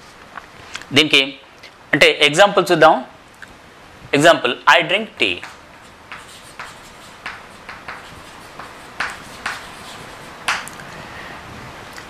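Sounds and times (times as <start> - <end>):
chalk writing on chalkboard: 5.2 - 10.7.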